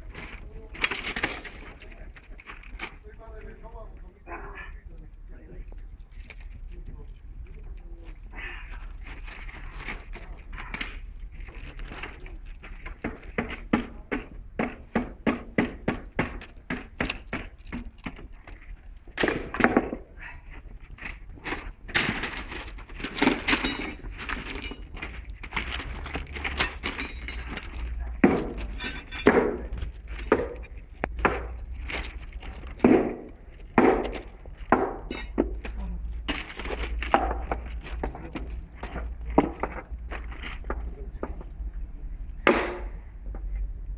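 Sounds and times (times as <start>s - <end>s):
metal knocks and scrapes: 20.8s - 41.5s
metal striking metal: 42.4s - 43.0s.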